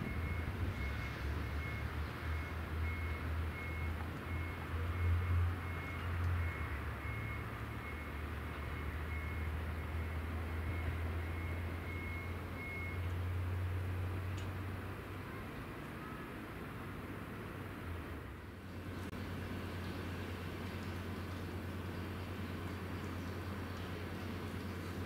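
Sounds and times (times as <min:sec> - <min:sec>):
diesel engine rumble: 0:00.0 - 0:25.0
faint high beep: 0:10.6 - 0:13.1.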